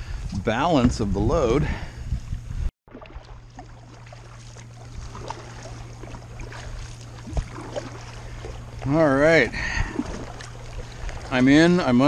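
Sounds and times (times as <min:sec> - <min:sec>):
steady low hum: 0:00.0 - 0:12.0
kayak paddle splashing: 0:02.9 - 0:12.0
water trickling along hull: 0:02.9 - 0:12.0.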